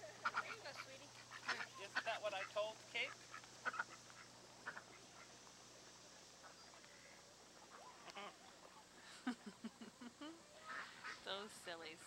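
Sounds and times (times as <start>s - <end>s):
faint duck quacks: 0.0s - 8.8s, 10.6s - 11.4s
faint tape hiss: 0.0s - 12.0s.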